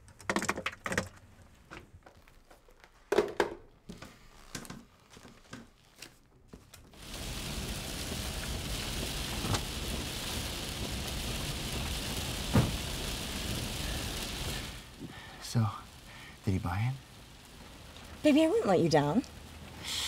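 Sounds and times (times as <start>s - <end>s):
rain falling on a car: 6.9s - 20.0s
dull thump: 12.5s - 12.9s.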